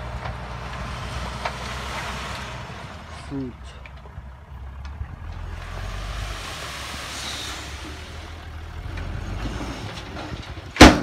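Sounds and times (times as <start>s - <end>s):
diesel truck engine running: 0.0s - 11.0s
soil sliding out rushing: 5.3s - 10.8s.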